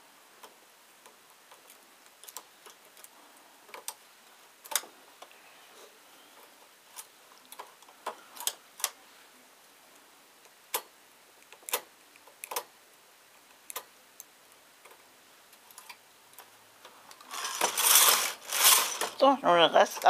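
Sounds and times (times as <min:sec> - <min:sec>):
knitting machine needles clicking: 0:10.7 - 0:12.7, 0:17.1 - 0:20.0.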